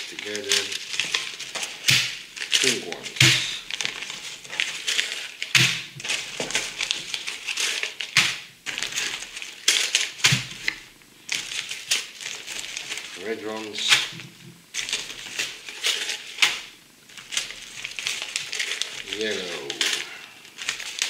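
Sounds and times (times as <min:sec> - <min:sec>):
plastic bags of bricks rattling: 0:00.0 - 0:21.0
bags knocking on wooden floor: 0:01.5 - 0:04.1, 0:13.8 - 0:15.2.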